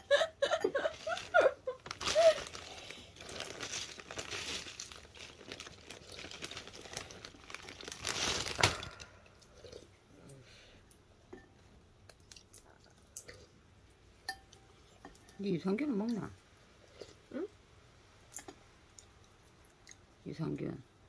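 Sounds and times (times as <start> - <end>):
plastic packaging crinkling: 0.8 - 9.2.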